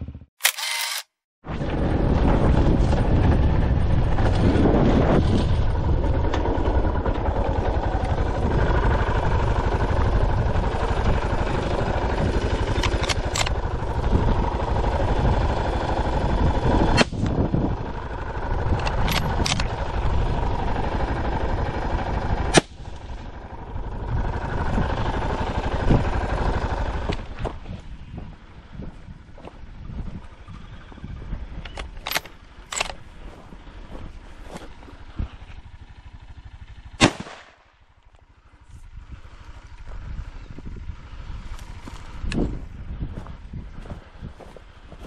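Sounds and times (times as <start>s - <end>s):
steady low noise: 1.5s - 45.0s
rifle shots: 37.0s - 37.7s.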